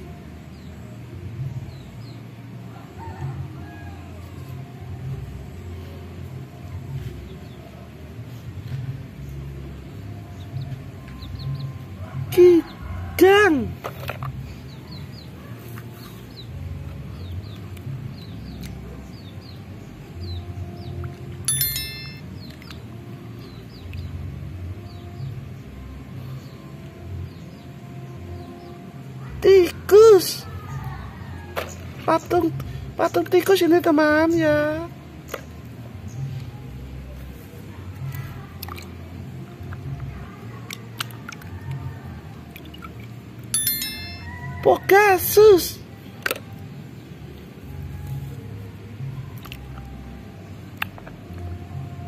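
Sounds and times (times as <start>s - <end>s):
water splashes and drips: 38.5s - 39.9s, 40.6s - 43.5s, 49.3s - 50.0s.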